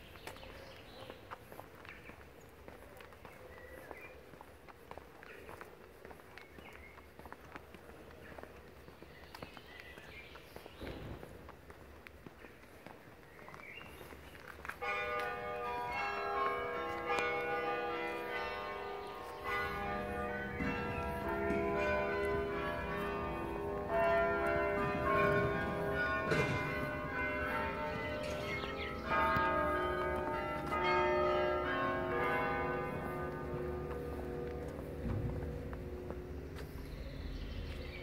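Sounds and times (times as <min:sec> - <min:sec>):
church bells ringing a tune: 0:14.6 - 0:38.0.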